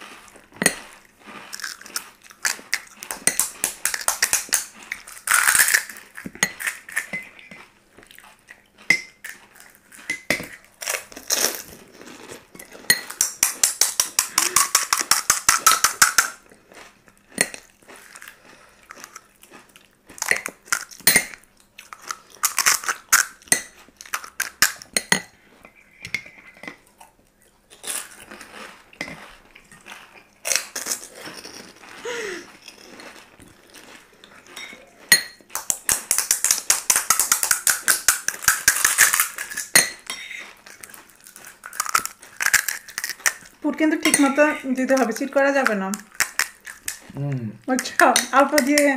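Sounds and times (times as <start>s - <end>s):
metal spoons clinking on bowls: 6.4s - 7.3s, 12.6s - 16.3s, 21.0s - 21.4s, 34.6s - 35.4s, 37.0s - 40.3s, 44.0s - 47.0s, 47.7s - 48.9s.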